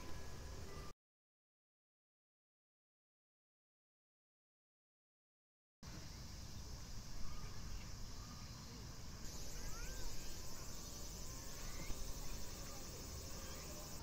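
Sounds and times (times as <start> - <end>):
insects trilling: 5.9 - 14.0
pulsing insect trill: 9.2 - 14.0.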